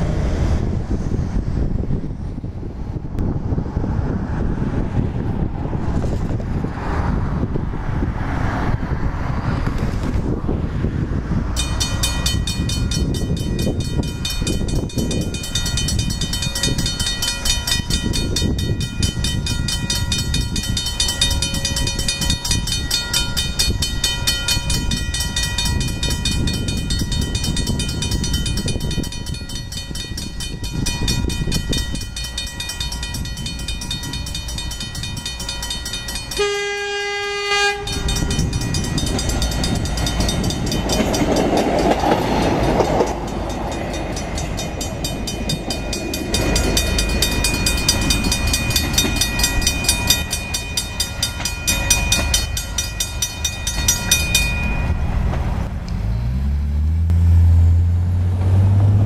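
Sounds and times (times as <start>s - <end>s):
railcar engine rumbling: 0.0s - 59.0s.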